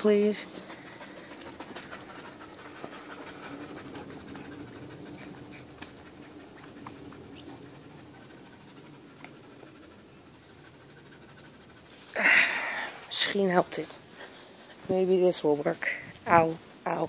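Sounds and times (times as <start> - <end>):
dog panting: 0.1 - 13.1.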